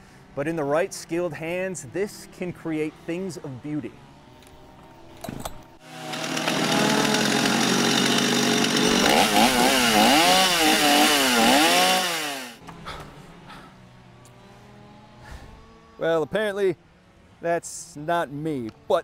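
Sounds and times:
chainsaw cutting log: 5.8 - 12.6.

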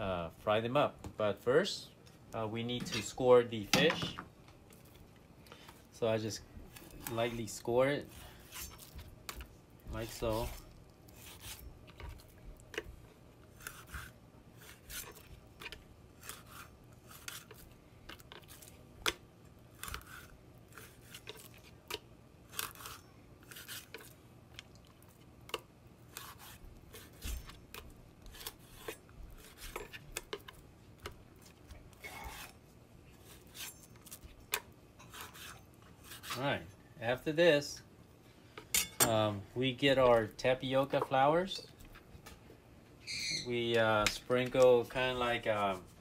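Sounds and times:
knife scraping fish skin: 8.0 - 9.0, 10.0 - 11.7, 13.5 - 18.7, 19.7 - 21.7, 22.5 - 24.2, 26.1 - 30.6, 31.9 - 32.6, 33.2 - 36.4.

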